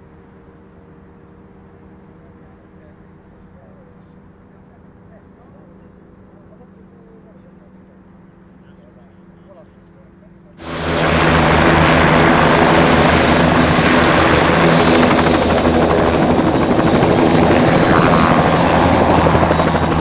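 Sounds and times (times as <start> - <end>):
helicopter rotor beat: 10.6 - 20.0
high turbine whine: 10.6 - 20.0.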